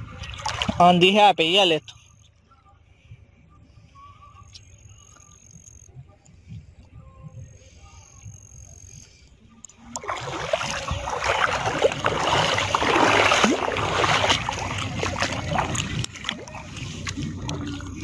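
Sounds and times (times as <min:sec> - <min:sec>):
water splashing and sloshing: 0:00.0 - 0:01.8, 0:09.8 - 0:18.0.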